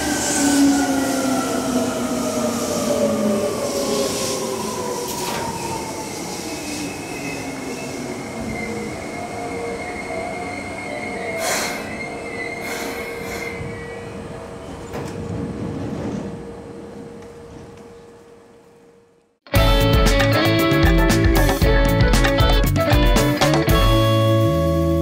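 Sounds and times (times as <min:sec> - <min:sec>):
high brake squeal: 0:06.4 - 0:14.1.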